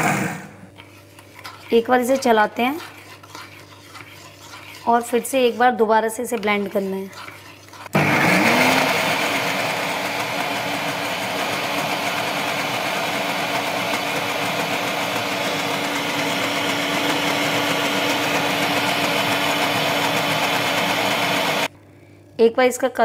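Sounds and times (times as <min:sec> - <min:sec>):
mixer grinder whirring: 0:06.3 - 0:21.7.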